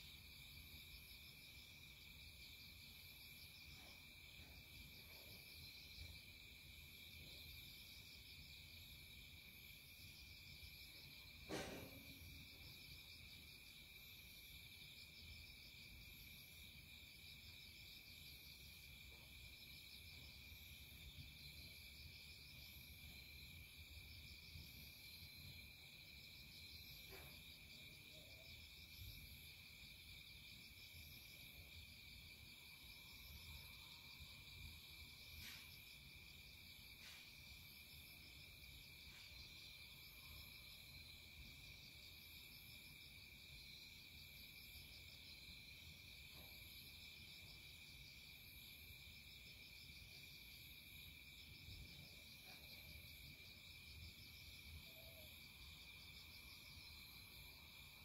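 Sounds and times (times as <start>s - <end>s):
insect pulsing chirp: 51.7s - 58.0s.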